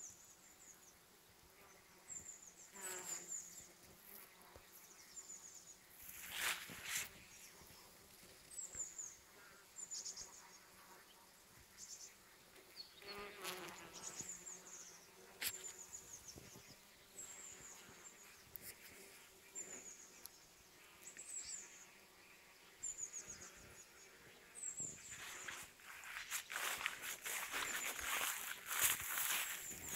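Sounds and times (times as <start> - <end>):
bees buzzing: 13.0 - 16.1, 23.0 - 29.9.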